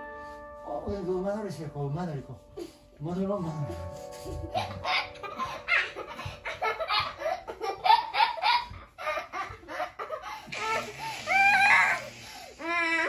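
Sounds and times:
young boy laughing: 3.9s - 12.0s.

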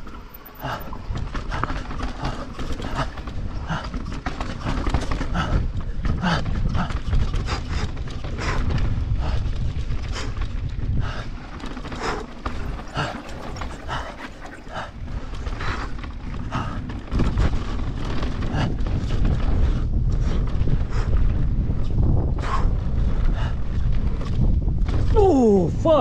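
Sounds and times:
wind rumbling over microphone: 0.0s - 26.0s
tyres rolling on dirt: 8.0s - 19.6s.

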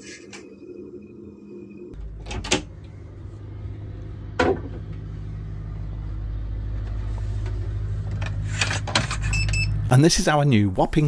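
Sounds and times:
diesel generator humming: 0.0s - 11.0s.

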